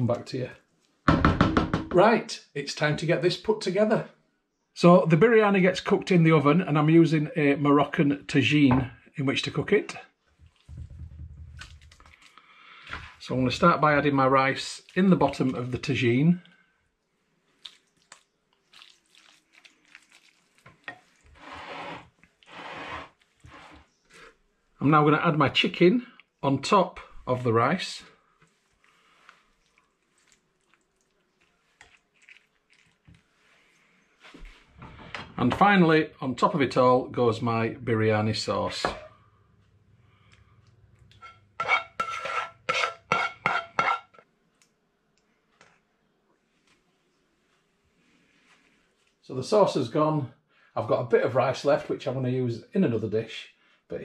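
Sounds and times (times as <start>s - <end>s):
spoon scraping rice: 19.2s - 24.4s, 28.8s - 33.0s, 41.1s - 44.1s.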